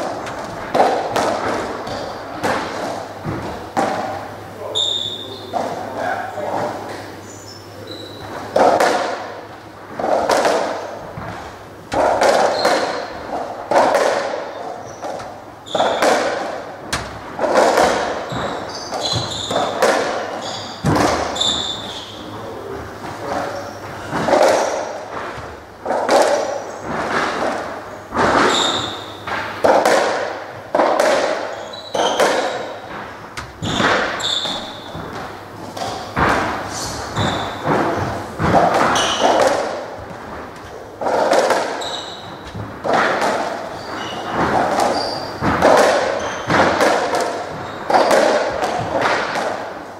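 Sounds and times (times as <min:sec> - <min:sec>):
ball smacking off walls: 0:00.0 - 0:04.3, 0:08.4 - 0:21.8, 0:23.0 - 0:49.8
ball struck by rackets: 0:00.0 - 0:04.3, 0:08.4 - 0:22.2, 0:23.1 - 0:49.8
shoe squeaks: 0:01.8 - 0:02.3, 0:04.6 - 0:05.8, 0:06.4 - 0:08.5, 0:12.4 - 0:13.2, 0:14.5 - 0:16.4, 0:17.7 - 0:22.3, 0:23.3 - 0:25.1, 0:26.4 - 0:26.9, 0:28.4 - 0:29.2, 0:31.4 - 0:32.9, 0:33.6 - 0:38.2, 0:38.9 - 0:39.5, 0:41.6 - 0:42.6, 0:43.6 - 0:45.4, 0:46.0 - 0:46.6, 0:47.5 - 0:48.5.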